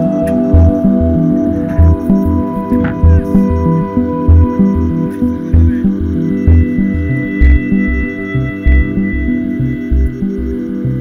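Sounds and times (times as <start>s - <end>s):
background music with pulsing bass: 0.0s - 11.0s.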